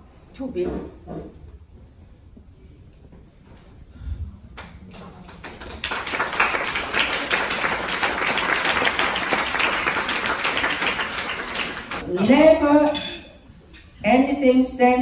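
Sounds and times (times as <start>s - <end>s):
crowd applauding: 4.9s - 12.0s.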